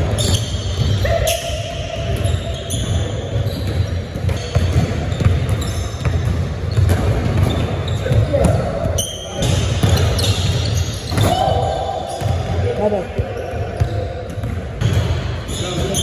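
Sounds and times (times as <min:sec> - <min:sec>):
sneaker squeaks: 0:00.0 - 0:16.0.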